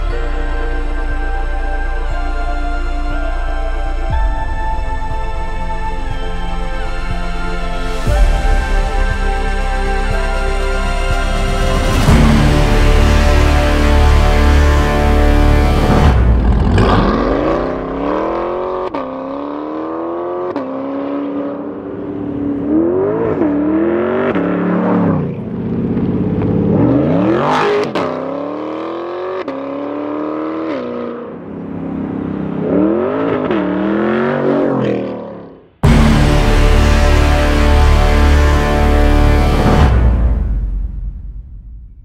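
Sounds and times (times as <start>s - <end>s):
car engine accelerating hard: 11.6s - 40.7s.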